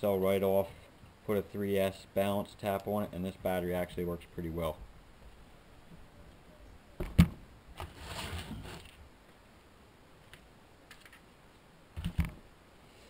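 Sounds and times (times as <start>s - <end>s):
rustle and scrape: 7.8s - 9.4s.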